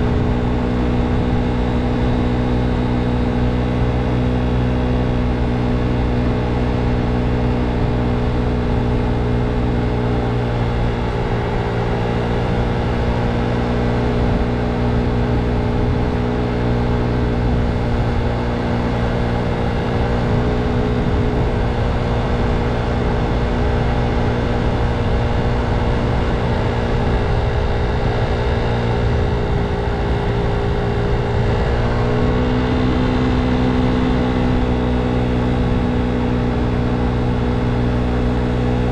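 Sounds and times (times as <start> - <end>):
motor scooter engine cruising: 0.0 - 38.9
wind buffeting microphone: 19.2 - 38.9.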